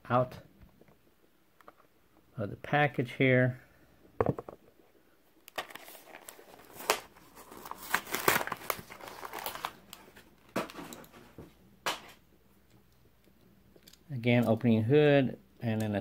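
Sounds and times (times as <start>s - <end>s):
plastic blister pack crinkling: 5.4s - 11.1s.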